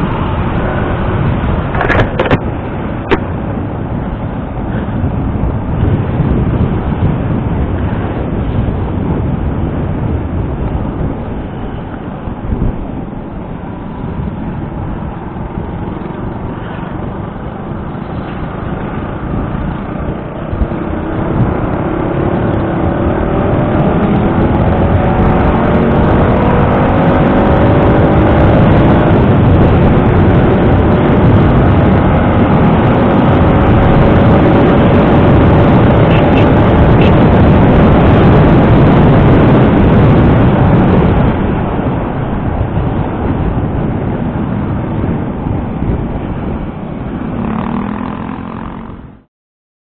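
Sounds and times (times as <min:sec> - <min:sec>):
wind rushing over microphone: 0:00.0 - 0:49.3
motor scooter engine accelerating: 0:47.2 - 0:49.2.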